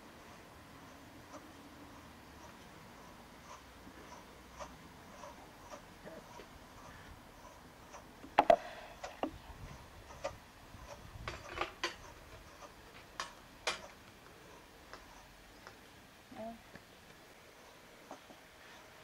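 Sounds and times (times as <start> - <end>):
wooden cradle clacking and knocking: 10.2 - 13.9.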